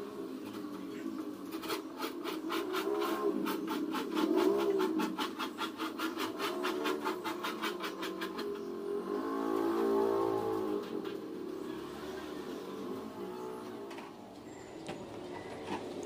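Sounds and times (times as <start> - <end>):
hand tool rasping laminate edge: 1.5 - 11.3.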